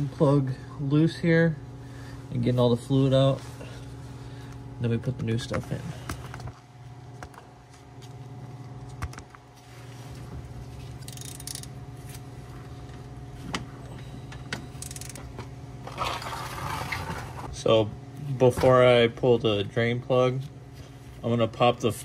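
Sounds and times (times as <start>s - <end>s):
steady low hum: 0.0s - 22.0s
metallic clicks and clinks: 11.0s - 11.7s.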